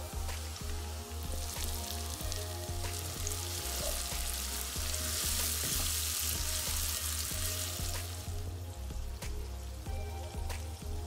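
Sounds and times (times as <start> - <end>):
background music: 0.0 - 11.0
vegetables sizzling in oil: 0.0 - 11.0.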